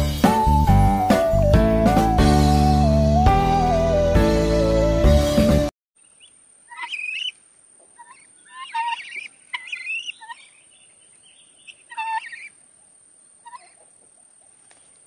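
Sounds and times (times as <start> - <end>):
short squeaky animal calls: 6.7 - 7.4, 8.0 - 10.6, 11.6 - 12.5, 13.4 - 13.8.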